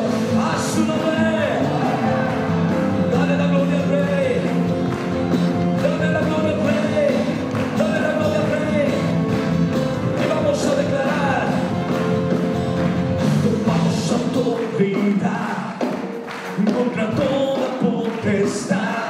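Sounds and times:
person singing: 0:00.0 - 0:04.8, 0:13.3 - 0:19.0
electric guitar: 0:00.0 - 0:19.0
worship band playing: 0:00.0 - 0:19.0.

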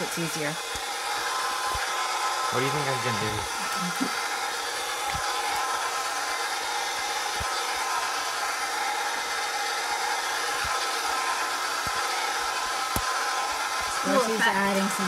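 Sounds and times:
electric stand mixer running: 0:00.0 - 0:15.0.

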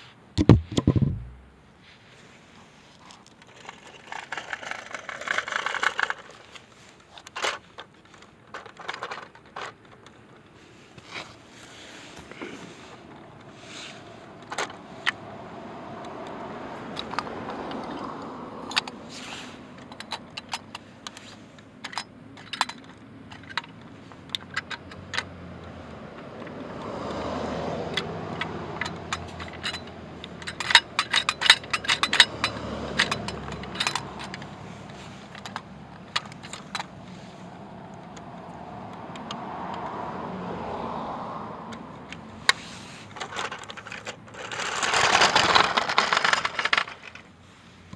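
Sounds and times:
toy truck clicking and rattling: 0:03.2 - 0:10.4, 0:16.1 - 0:39.9, 0:41.7 - 0:47.3
car passing: 0:12.7 - 0:19.6, 0:24.8 - 0:43.2.

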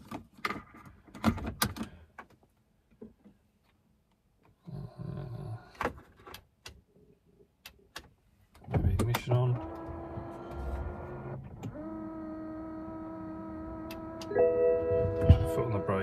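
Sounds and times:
small electric motor whirring: 0:09.6 - 0:14.3.

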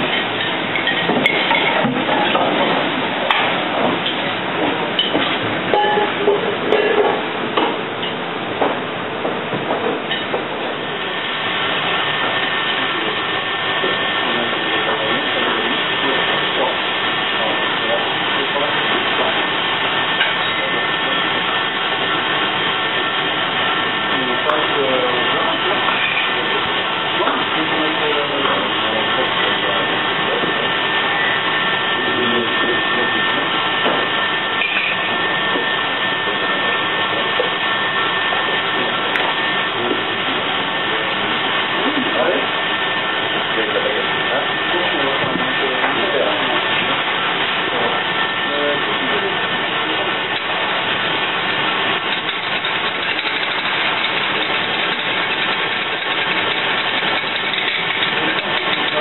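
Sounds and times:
thin high whine: 0:00.0 - 0:59.0
ventilation hood roaring: 0:00.0 - 0:59.0
utensils clinking: 0:52.1 - 0:59.0.

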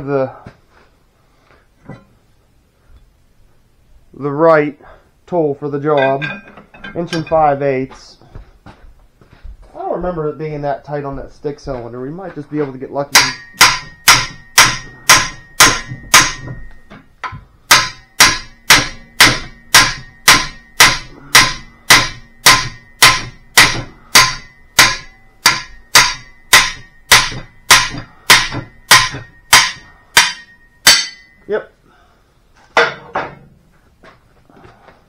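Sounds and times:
hammer striking steel wrench: 0:06.0 - 0:07.5, 0:13.1 - 0:31.4
wrench ringing: 0:06.0 - 0:07.6, 0:13.1 - 0:31.5.

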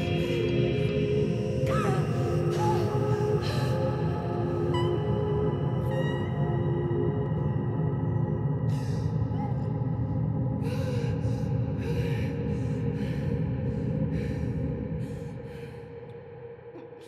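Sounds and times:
dark ambient music drone: 0:00.0 - 0:17.0
person breathing raggedly: 0:10.5 - 0:16.0.

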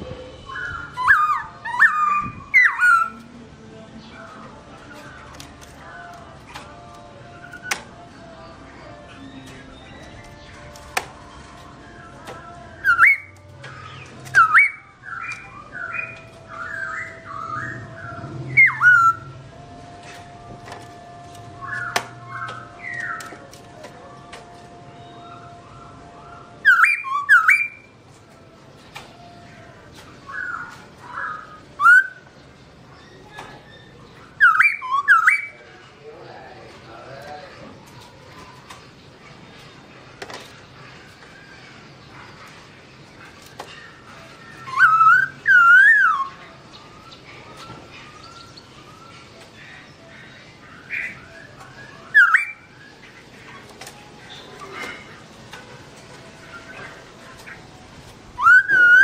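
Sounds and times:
bird whistling: 0:00.4 - 0:03.2, 0:11.9 - 0:19.4, 0:21.6 - 0:23.4, 0:25.0 - 0:27.9, 0:30.2 - 0:32.3, 0:33.0 - 0:35.6, 0:43.7 - 0:49.4, 0:50.6 - 0:55.0, 0:58.4 - 0:59.0.

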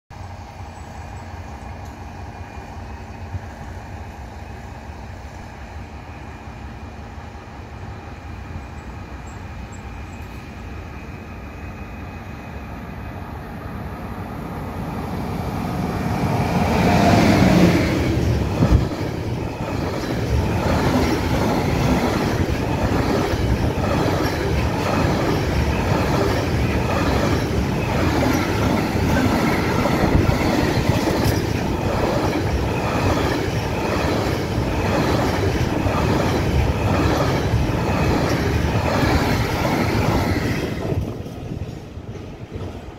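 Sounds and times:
locomotive rumble: 0:15.8 - 0:42.9.

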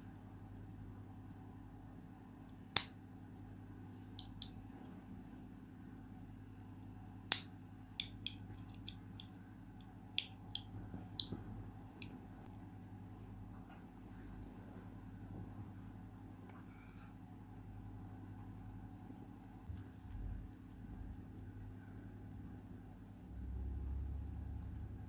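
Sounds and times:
faint steady hum: 0:00.0 - 0:25.0
bead clicking against metal wire: 0:02.8 - 0:03.0.

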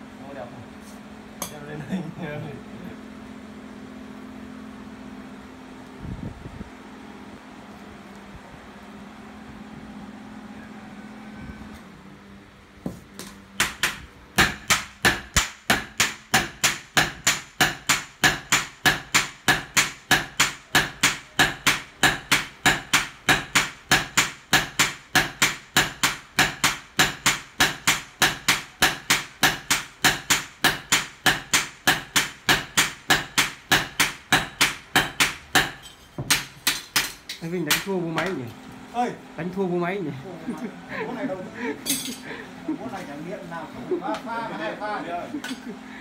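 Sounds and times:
hammers striking hot metal on anvil: 0:13.6 - 0:38.4.

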